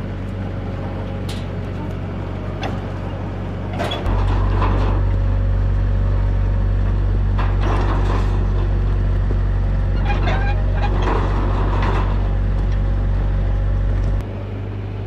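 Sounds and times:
skid steer engine running: 0:00.0 - 0:15.0
metal clanks and rattles: 0:01.0 - 0:05.7, 0:06.7 - 0:14.2.

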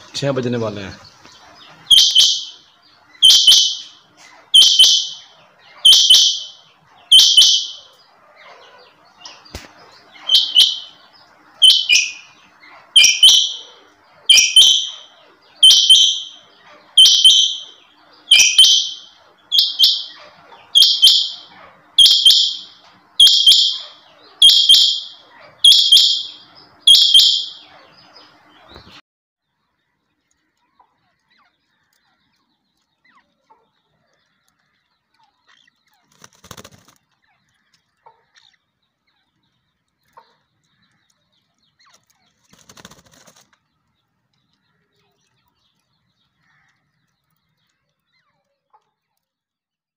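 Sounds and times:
quail calling: 0:00.0 - 0:29.0.

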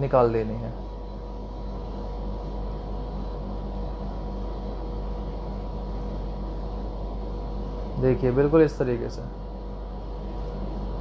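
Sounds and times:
low electrical hum and hiss: 0:00.0 - 0:11.0.

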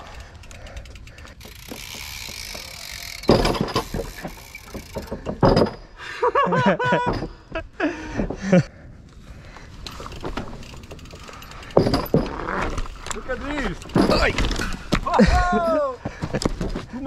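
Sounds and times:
bike knocking and rattling: 0:00.0 - 0:06.0, 0:06.6 - 0:08.7, 0:09.4 - 0:17.0
bike tires rolling hiss: 0:09.0 - 0:11.8.

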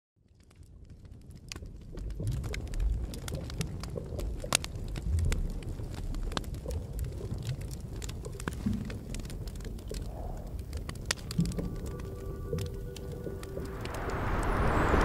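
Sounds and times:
fire crackling and popping: 0:00.2 - 0:15.0
low steady rumble: 0:11.7 - 0:15.0.

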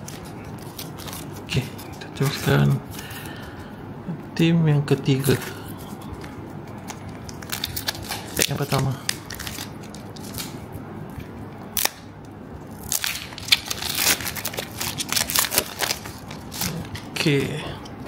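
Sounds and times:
foil crinkling: 0:06.2 - 0:10.6, 0:12.8 - 0:17.2
foil wrapper tearing: 0:07.3 - 0:10.6, 0:12.8 - 0:17.1.

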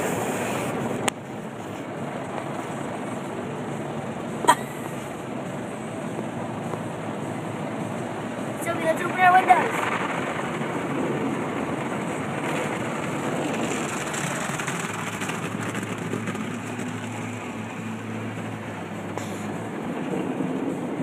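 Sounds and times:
water spray and spinning brushes: 0:08.6 - 0:21.0.

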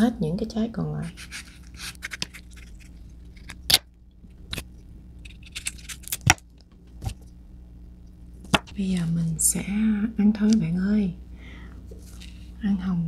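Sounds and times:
knife cutting fruit skin: 0:01.1 - 0:03.9, 0:05.3 - 0:06.4, 0:08.4 - 0:08.8.

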